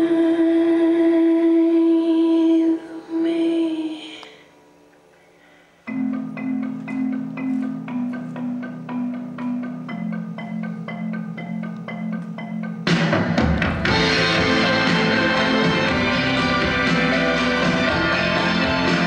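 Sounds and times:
bright mallet notes: 5.9s - 19.0s.

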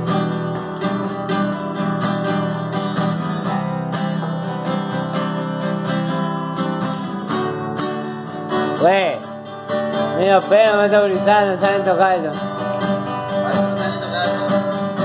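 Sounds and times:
acoustic guitars strumming: 0.0s - 15.0s.

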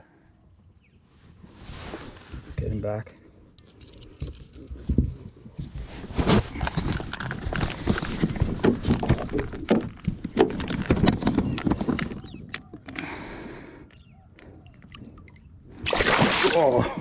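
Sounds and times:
knocks and thumps in boat: 7.7s - 12.9s.

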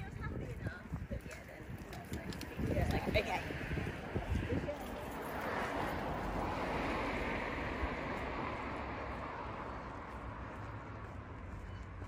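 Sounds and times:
car driving past: 3.4s - 11.4s.

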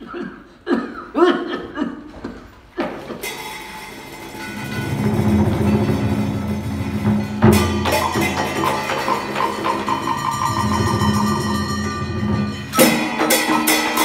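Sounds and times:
traditional ensemble music: 2.1s - 14.0s
wood block and drum strikes: 2.8s - 14.0s.

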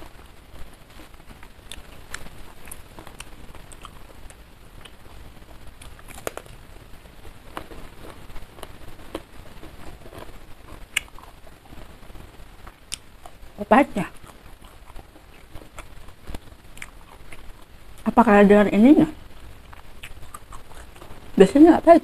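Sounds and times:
person chewing food: 1.4s - 6.6s, 7.3s - 12.0s, 12.6s - 17.7s, 19.6s - 21.2s
crisp crunches: 5.8s - 6.6s.

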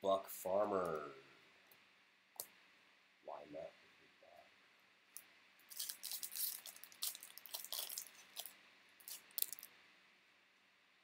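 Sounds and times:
cards and wrapper crinkling: 5.6s - 9.7s.

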